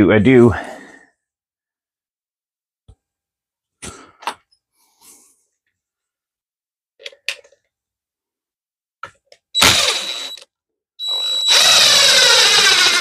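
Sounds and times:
drill motor whine: 9.6s - 10.4s, 11.0s - 13.0s.

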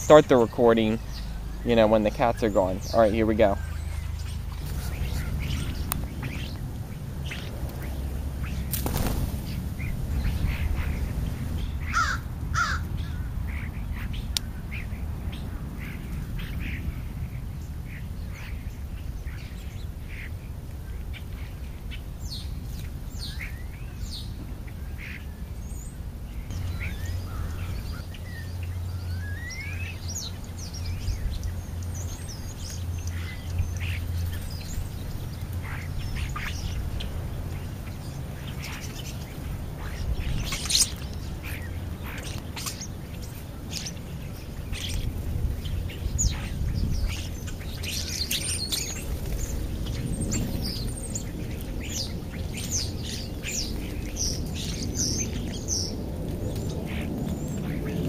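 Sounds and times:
steady low hum: 0.0s - 21.8s
starlings calling: 0.0s - 58.0s.

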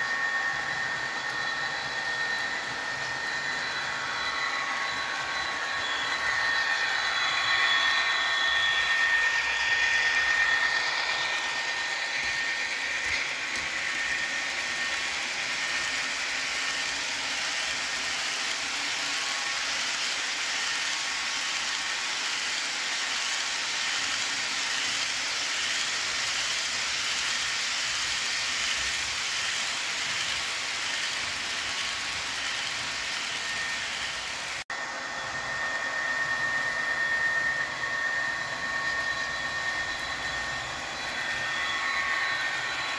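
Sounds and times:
model train cars rolling on track: 0.0s - 35.0s, 37.6s - 42.9s
model locomotive whine: 0.0s - 42.9s.

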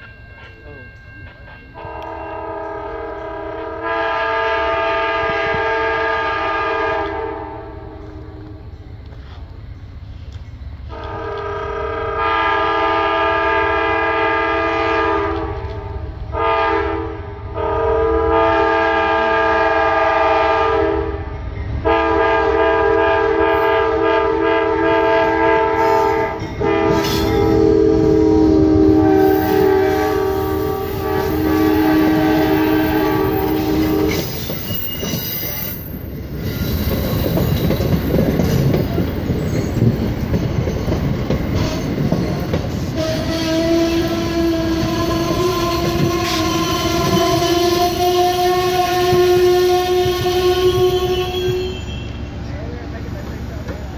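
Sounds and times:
locomotive air horn blasts: 1.8s - 8.6s, 10.9s - 21.2s, 21.8s - 35.8s, 42.9s - 52.3s
train wheels clattering over rails: 32.4s - 52.0s.

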